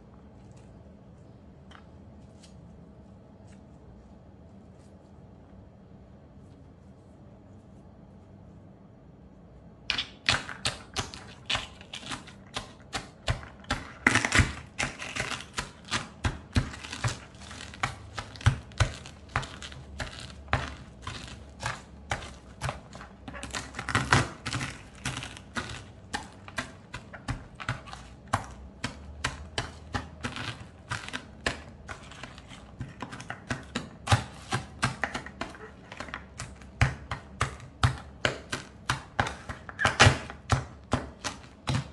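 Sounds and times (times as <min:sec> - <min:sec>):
stone pestle crushing eggshells: 0:09.9 - 0:41.9.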